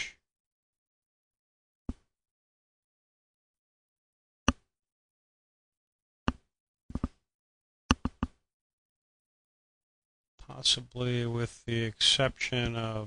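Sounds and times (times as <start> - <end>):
mouse or keyboard clicks: 6.3 - 7.2, 7.9 - 8.4.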